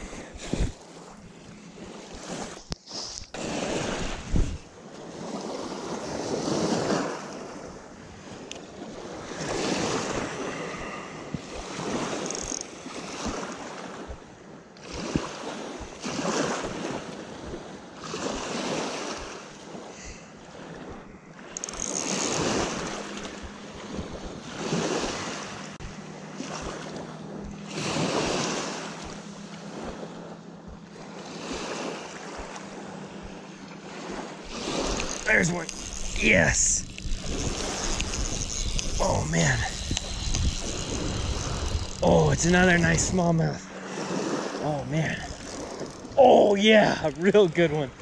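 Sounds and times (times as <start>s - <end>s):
small waves lapping on shore: 0.0s - 48.0s.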